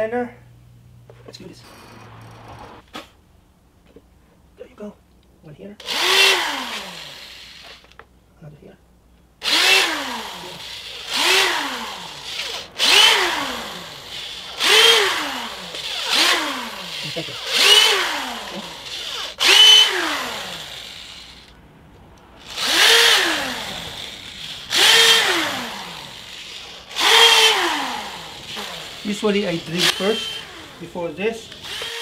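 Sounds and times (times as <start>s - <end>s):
electric drill bursts: 5.8s - 8.0s, 9.4s - 21.6s, 22.4s - 32.0s.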